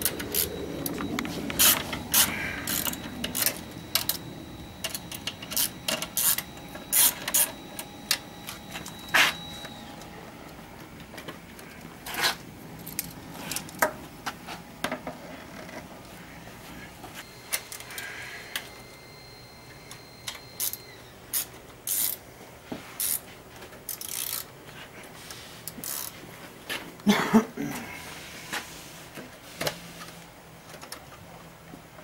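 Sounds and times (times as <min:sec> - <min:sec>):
ratchet clicking: 0:20.6 - 0:22.2, 0:23.0 - 0:23.2, 0:23.9 - 0:24.5, 0:25.7 - 0:26.2.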